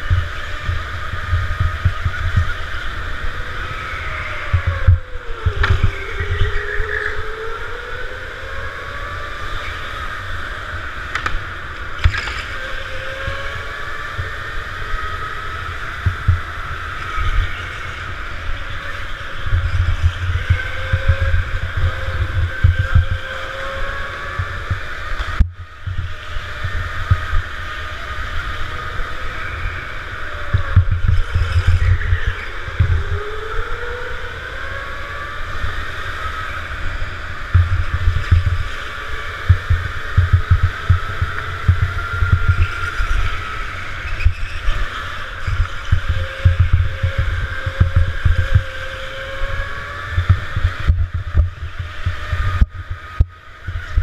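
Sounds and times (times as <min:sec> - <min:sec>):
go-kart motor whine: 0:00.0 - 0:54.0
heavy low rumble: 0:39.3 - 0:43.3.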